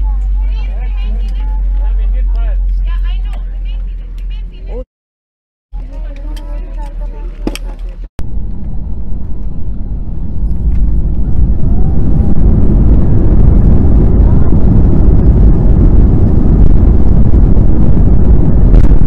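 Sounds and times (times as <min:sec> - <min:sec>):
jet engines and landing gear rumbling: 0:00.0 - 0:04.8, 0:07.5 - 0:19.0.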